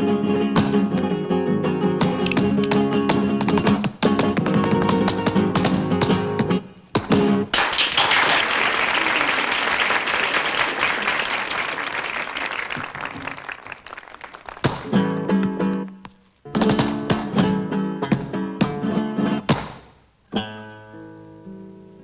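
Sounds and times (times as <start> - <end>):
flamenco guitar: 0.0 - 8.0, 12.8 - 22.0
footwork on a hard floor: 2.0 - 7.3, 14.6 - 18.9
applause: 7.5 - 14.9.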